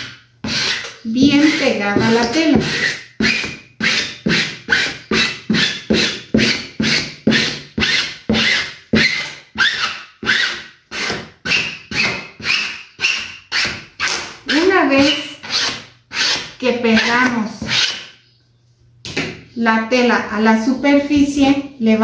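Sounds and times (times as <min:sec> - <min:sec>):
spatula rubbing across canvas: 0:00.5 - 0:09.2.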